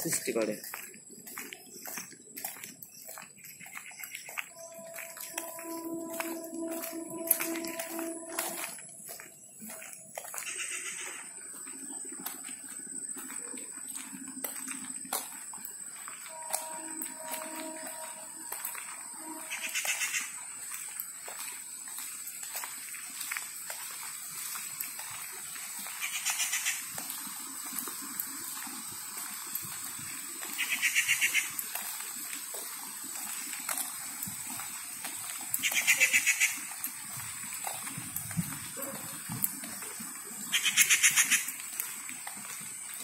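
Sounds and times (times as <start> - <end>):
animal trilling call: 30.6 - 31.5, 35.6 - 36.6, 40.5 - 41.5.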